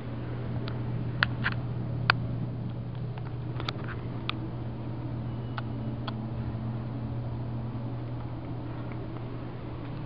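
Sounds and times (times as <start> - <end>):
elevator hum: 0.0 - 10.0.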